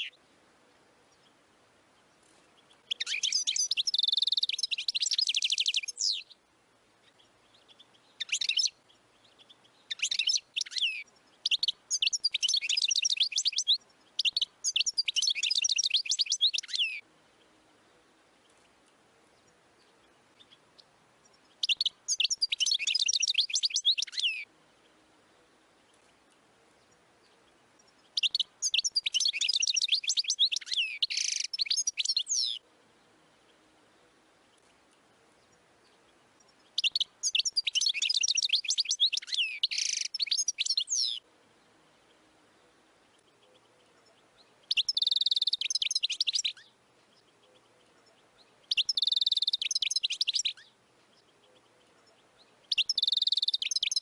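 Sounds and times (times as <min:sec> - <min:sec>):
goldfinch twittering and trills: 0:02.6 - 0:06.4, 0:07.0 - 0:17.0, 0:19.4 - 0:24.5, 0:25.9 - 0:32.6, 0:34.6 - 0:41.2, 0:43.2 - 0:54.0.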